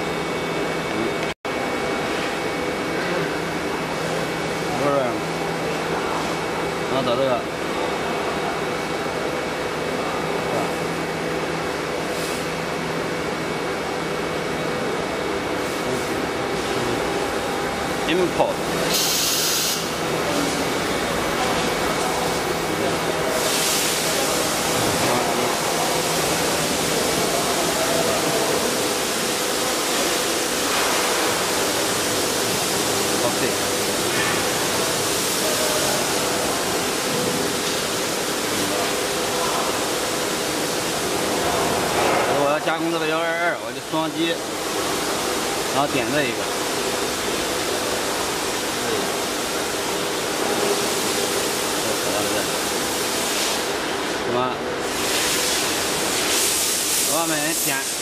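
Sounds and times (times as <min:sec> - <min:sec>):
machinery hiss: 0:18.8 - 0:20.6, 0:22.8 - 0:41.2, 0:54.8 - 0:58.0.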